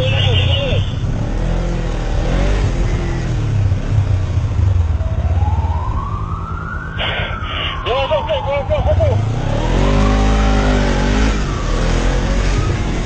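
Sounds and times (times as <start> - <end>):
vehicle engine droning: 0.0 - 13.0
siren wailing: 4.9 - 13.0.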